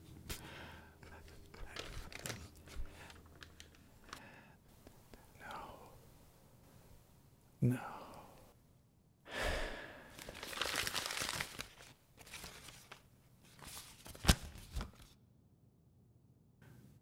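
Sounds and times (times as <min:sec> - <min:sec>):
paper rustling and crinkling: 0:01.0 - 0:04.2, 0:10.2 - 0:15.2
man sighing: 0:07.6 - 0:08.4, 0:09.3 - 0:10.1.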